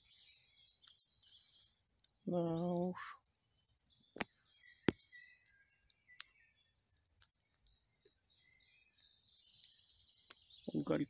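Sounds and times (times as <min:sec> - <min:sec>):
birds chirping: 0:00.0 - 0:11.0
burning wood popping: 0:00.0 - 0:11.0
meat sizzling over fire: 0:00.0 - 0:11.0.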